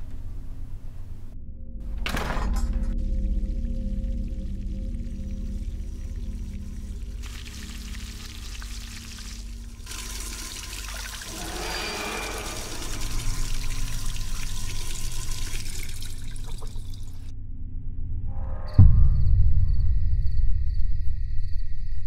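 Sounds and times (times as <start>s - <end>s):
steady low drone: 0.0s - 9.9s, 11.2s - 15.4s
water pouring: 3.0s - 17.3s.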